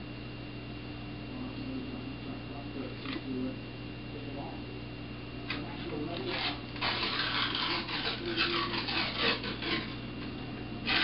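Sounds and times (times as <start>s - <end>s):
paper wrapper tearing: 6.2s - 10.0s.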